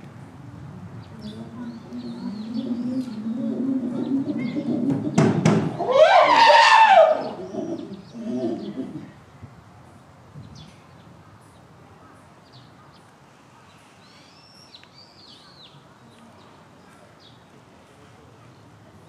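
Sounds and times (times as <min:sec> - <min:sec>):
steady background noise: 0:00.0 - 0:19.0
small birds chirping: 0:01.0 - 0:05.9, 0:07.2 - 0:09.2.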